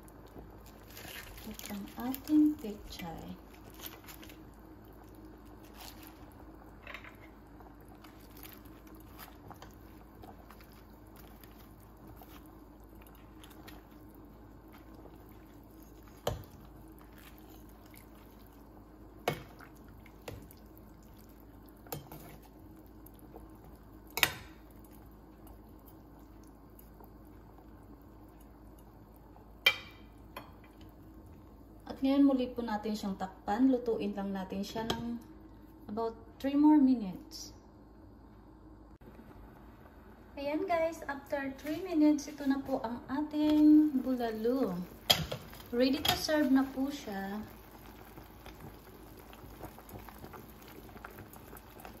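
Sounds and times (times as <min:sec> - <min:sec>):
liquid sounds: 0:00.0 - 0:29.6, 0:43.8 - 0:52.0
steady low hum: 0:00.0 - 0:52.0
faint crunching of leaves: 0:00.6 - 0:02.8.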